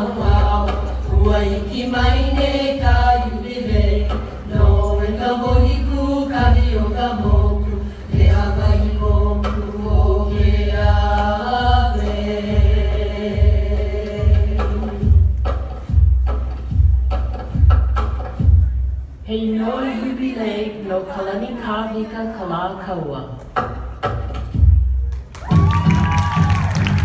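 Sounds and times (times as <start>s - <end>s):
chanted vocals in unison: 0.0s - 15.0s
deep drum beat: 0.0s - 19.0s.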